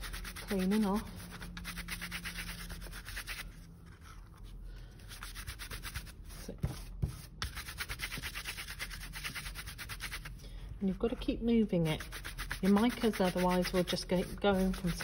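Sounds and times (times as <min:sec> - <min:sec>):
brush sweeping over cardstock: 0:12.0 - 0:15.0.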